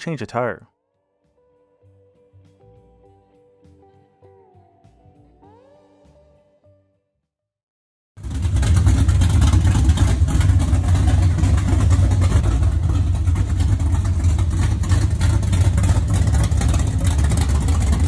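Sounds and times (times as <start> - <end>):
car engine idling: 8.2 - 18.0.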